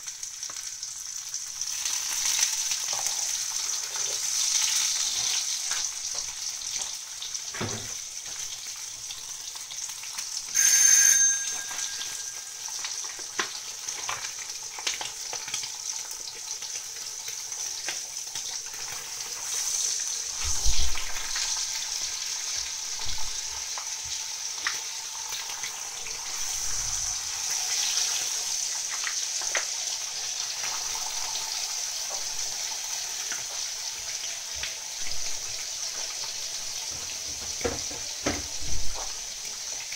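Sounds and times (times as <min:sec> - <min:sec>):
salami sizzling in a pan: 0:00.0 - 0:39.9
short loud tone: 0:10.5 - 0:12.9.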